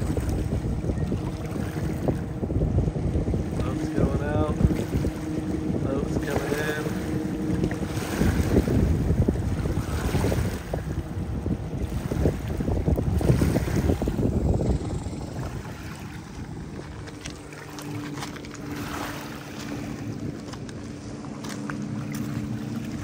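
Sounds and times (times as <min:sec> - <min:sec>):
distant motorboat engine droning: 0:00.0 - 0:23.0
wind buffeting microphone: 0:00.0 - 0:23.0
small waves lapping on pebbles: 0:15.4 - 0:23.0.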